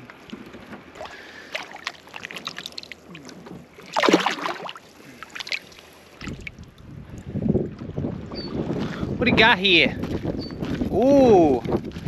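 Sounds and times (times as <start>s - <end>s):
water splashing: 0.0s - 7.9s
loud splash: 0.9s - 6.6s.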